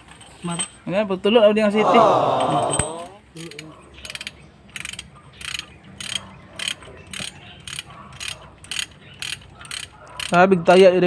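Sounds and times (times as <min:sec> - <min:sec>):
ratchet wrench clicking: 0:03.4 - 0:10.4.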